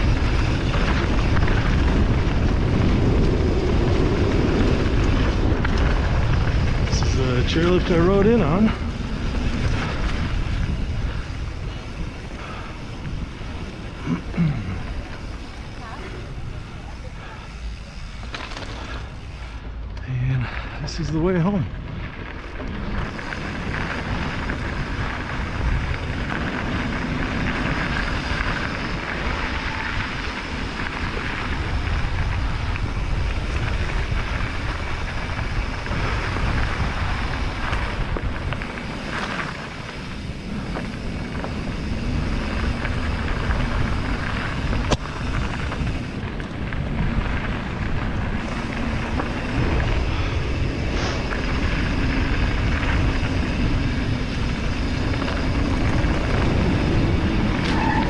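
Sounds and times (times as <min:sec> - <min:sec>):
wind on microphone: 0:00.0 - 0:18.2
bike tyres rolling on gravel: 0:00.0 - 0:58.0.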